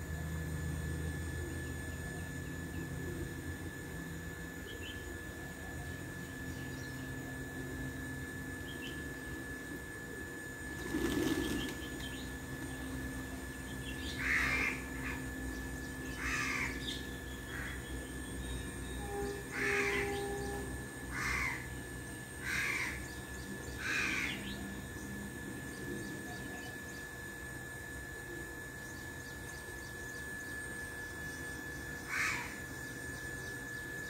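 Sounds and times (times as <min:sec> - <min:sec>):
crow cawing: 0:14.2 - 0:15.2, 0:16.2 - 0:16.9, 0:19.5 - 0:20.2, 0:21.1 - 0:21.7, 0:22.4 - 0:23.1, 0:23.8 - 0:24.5, 0:32.1 - 0:32.6.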